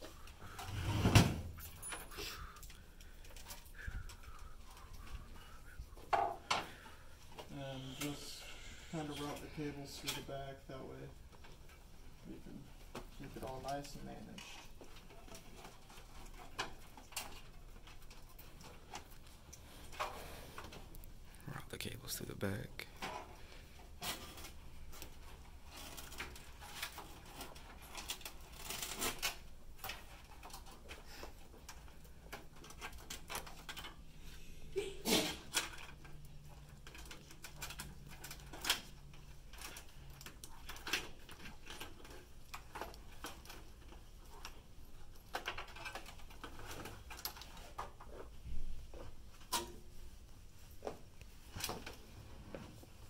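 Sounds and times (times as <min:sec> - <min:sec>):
cables rustling and scraping: 0:00.0 - 0:53.0.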